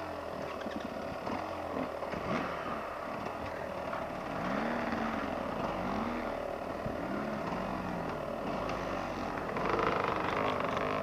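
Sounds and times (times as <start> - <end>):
dirt bike engines running: 0.0 - 11.0
dirt bike engine revving: 1.1 - 11.0.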